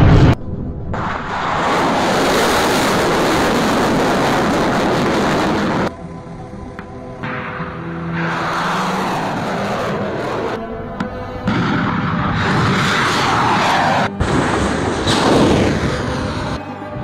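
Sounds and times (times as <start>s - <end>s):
missile launch roar: 0.0s - 5.9s, 7.3s - 10.6s, 11.5s - 16.6s
music: 4.9s - 17.0s.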